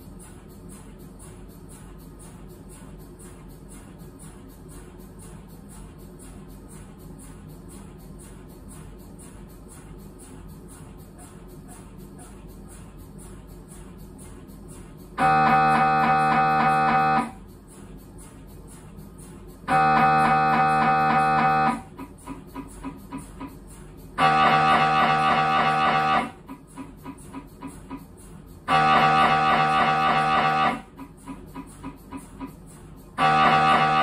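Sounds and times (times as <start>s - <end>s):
mri scanner buzzing tones: 15.1s - 17.5s, 19.6s - 34.0s.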